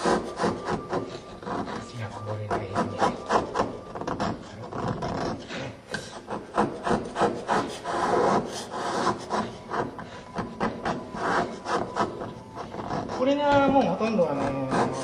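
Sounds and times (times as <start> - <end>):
chisel scraping slate: 0.0 - 15.0.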